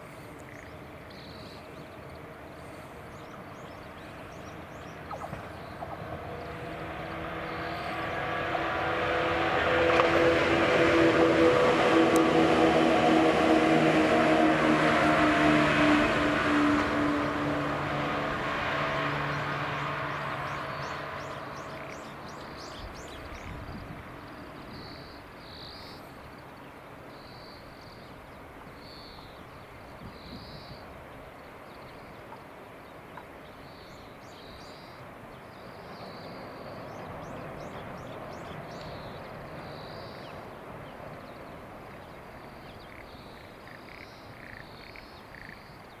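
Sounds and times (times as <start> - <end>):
electric train hum and rumble: 0.0 - 31.6.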